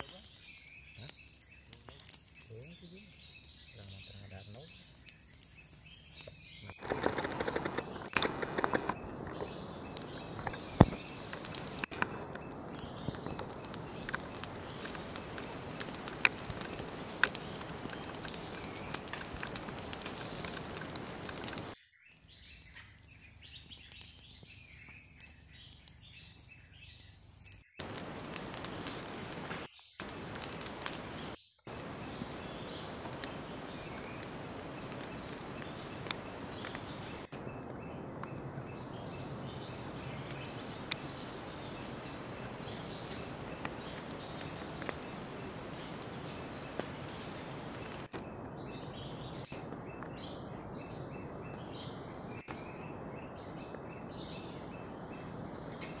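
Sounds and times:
crackly hiss with clicks: 0.0s - 56.0s
small birds chirping: 0.0s - 56.0s.

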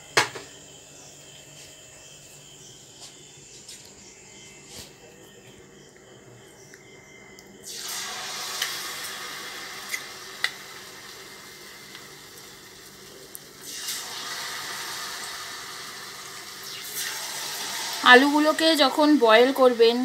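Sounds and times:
sharp popping oil: 7.7s - 9.0s, 9.8s - 10.8s
potatoes sizzling in hot oil: 7.7s - 20.0s.

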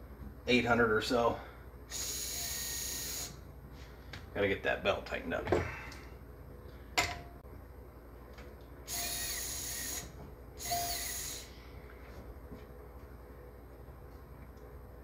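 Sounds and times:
small electric motor spinning: 1.9s - 3.4s, 8.9s - 11.5s.

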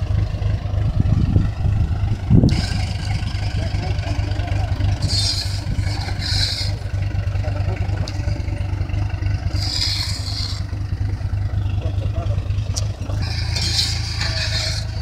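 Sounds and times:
tractor engine idling: 0.0s - 15.0s
shovels scraping compost: 9.5s - 10.7s, 12.8s - 15.0s.

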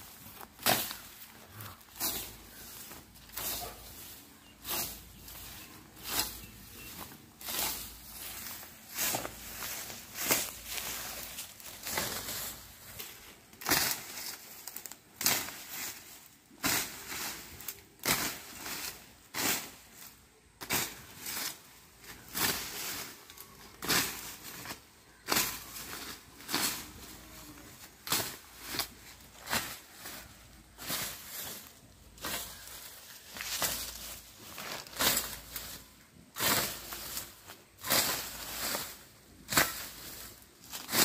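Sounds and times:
vegetation rustling: 0.0s - 41.0s
billhook swishing through weeds: 1.9s - 16.0s, 36.4s - 41.0s.

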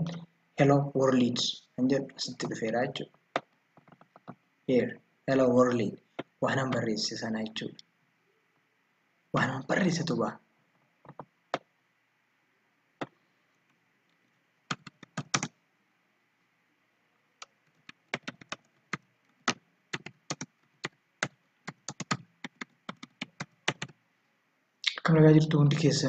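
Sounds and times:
computer keyboard typing: 14.7s - 15.6s, 17.4s - 24.0s.

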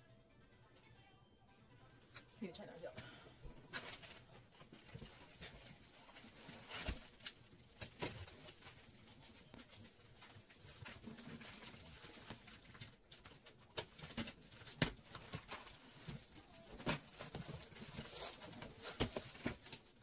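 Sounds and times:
cardboard scraping and rustling: 3.7s - 13.0s, 13.8s - 20.0s.

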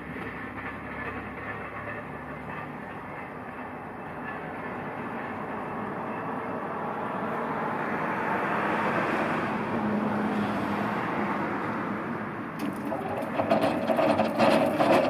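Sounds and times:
stacker rattling over paving: 12.6s - 15.0s.

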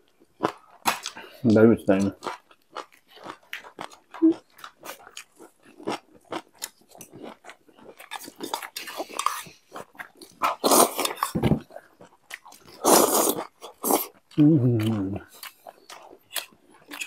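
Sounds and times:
wet chewing with crunches: 2.0s - 17.0s
loud slurp of noodles: 12.8s - 14.1s.

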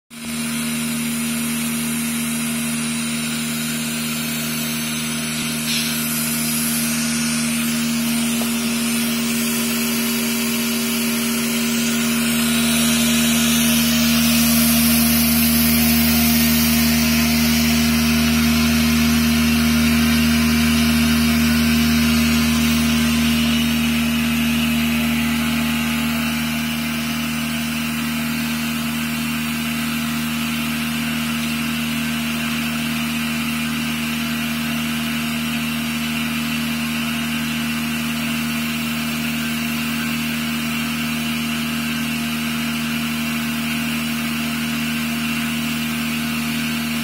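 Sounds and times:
vibratory bowl feeder humming: 0.2s - 31.9s
deeper hum: 1.2s - 29.9s.

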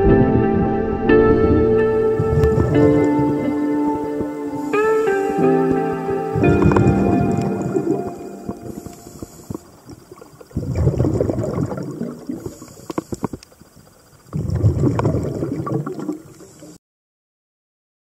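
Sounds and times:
exhaled bubbles gurgling: 1.4s - 16.8s
regulator inhale hiss: 4.2s - 5.9s, 8.2s - 10.2s, 12.3s - 13.9s, 16.3s - 16.8s.

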